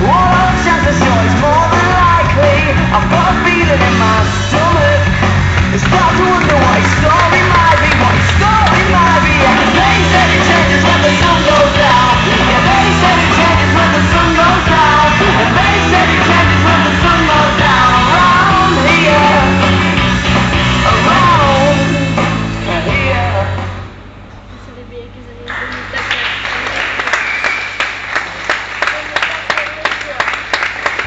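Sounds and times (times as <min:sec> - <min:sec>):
rock music with singing: 0:00.0 - 0:24.0
bass line: 0:00.0 - 0:24.2.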